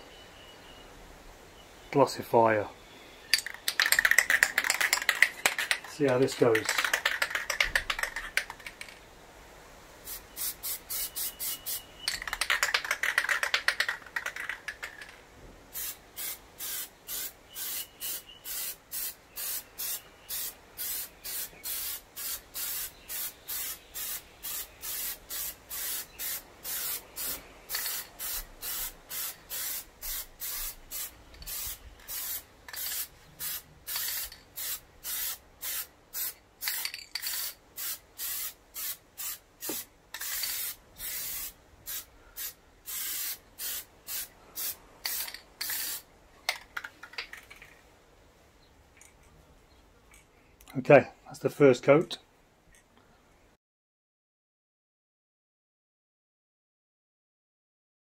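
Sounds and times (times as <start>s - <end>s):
aerosol can rattling: 3.4s - 9.0s, 12.0s - 15.2s, 24.5s - 42.0s, 45.0s - 47.8s
aerosol spray hissing bursts: 10.0s - 11.9s, 15.7s - 36.4s, 37.3s - 46.0s.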